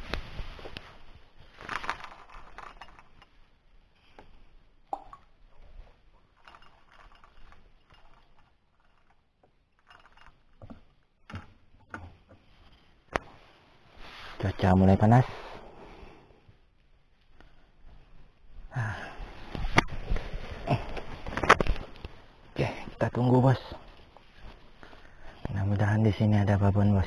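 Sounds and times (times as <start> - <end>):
rustling: 0.0 - 4.8, 5.6 - 15.6, 16.6 - 26.5.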